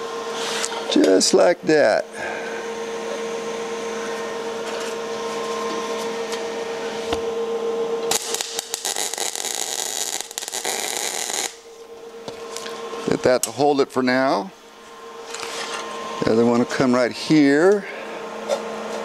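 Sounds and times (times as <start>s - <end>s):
machine hum: 0.0s - 19.0s
welding arc crackling: 8.0s - 11.8s.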